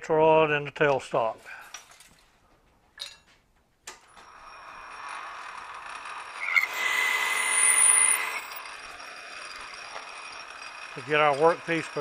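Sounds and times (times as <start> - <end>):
metal lathe running: 4.2 - 12.0
parting tool cutting with squeal: 4.2 - 12.0.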